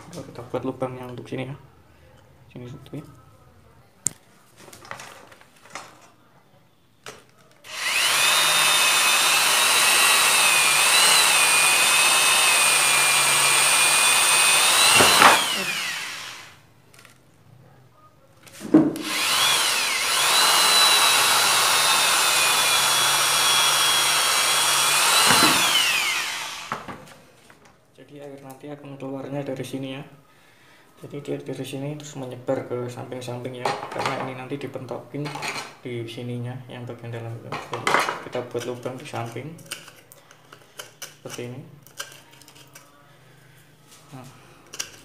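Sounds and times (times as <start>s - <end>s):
electric drill whining: 7.7s - 16.6s, 19.0s - 27.0s.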